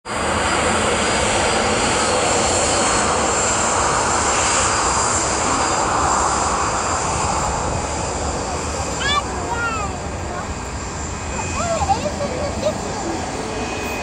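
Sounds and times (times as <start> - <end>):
jet engines roaring at takeoff: 0.0 - 14.0.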